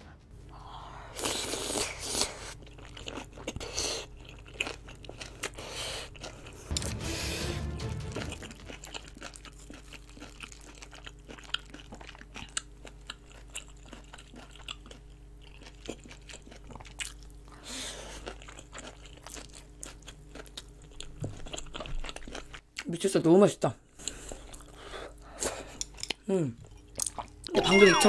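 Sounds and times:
close chewing mouth smacks: 0:27.0 - 0:27.5.

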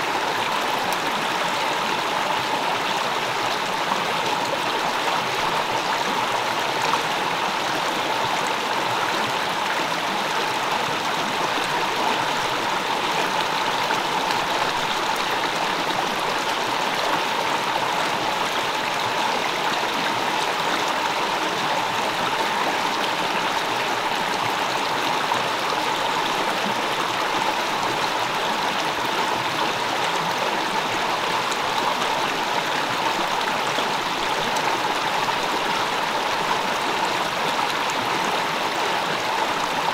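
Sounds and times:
stream water flowing: 0:00.0 - 0:39.9.

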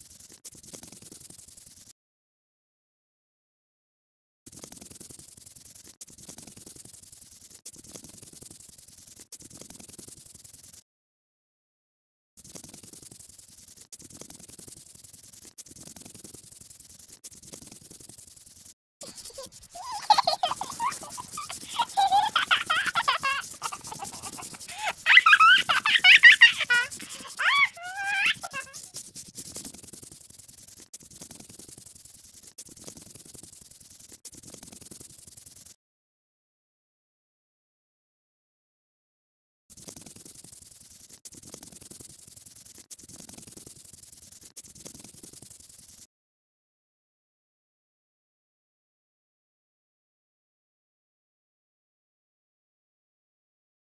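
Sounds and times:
paintbrush scrubbing: 0:00.0 - 0:01.9, 0:04.5 - 0:10.8, 0:12.4 - 0:35.8, 0:39.7 - 0:46.1
scratchy colouring strokes: 0:00.0 - 0:02.0, 0:04.5 - 0:10.8, 0:12.4 - 0:35.8, 0:39.7 - 0:46.1.

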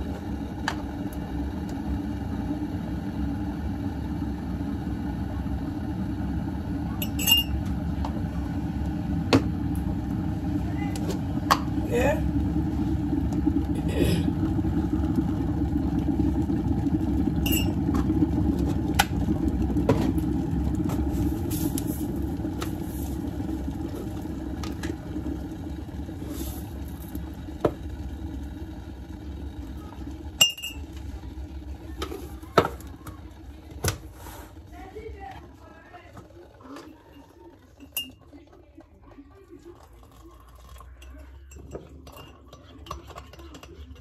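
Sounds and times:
electric kettle boiling: 0:00.0 - 0:44.0
spoon clinking on mug: 0:07.0 - 0:07.5, 0:37.8 - 0:38.2.

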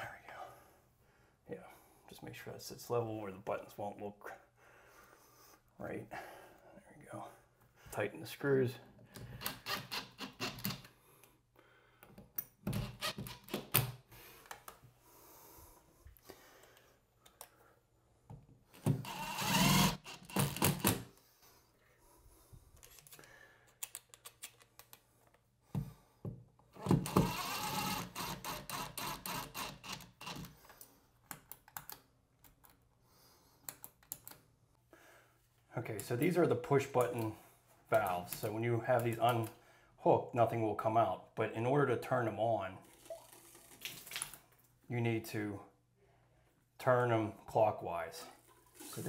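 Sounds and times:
cordless drill driving screws: 0:18.8 - 0:21.0, 0:26.8 - 0:30.5.

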